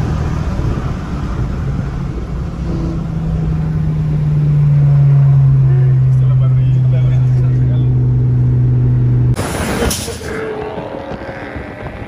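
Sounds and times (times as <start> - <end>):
car engine and road drone: 0.0 - 12.0.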